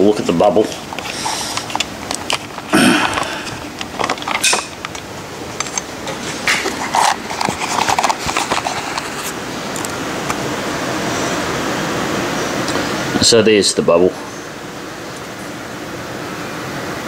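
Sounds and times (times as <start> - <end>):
steady background hiss: 0.0 - 17.0
camera handling knocks and rubbing: 0.8 - 10.0.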